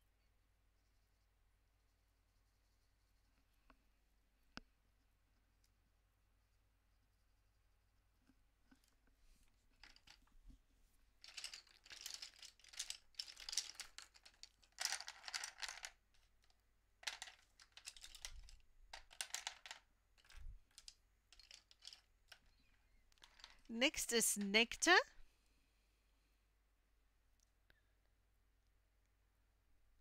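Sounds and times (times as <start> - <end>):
small hard objects clicking and rattling: 9.7 - 10.3, 11.2 - 23.7.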